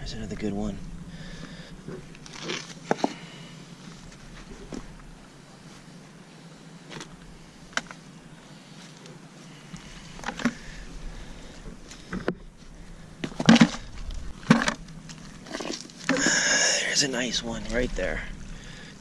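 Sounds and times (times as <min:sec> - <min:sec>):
low background noise: 0:00.0 - 0:19.0.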